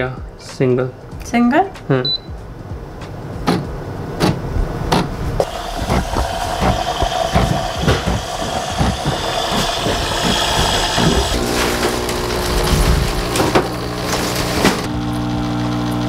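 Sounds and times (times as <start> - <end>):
pump buzzing hum: 5.4 - 16.0.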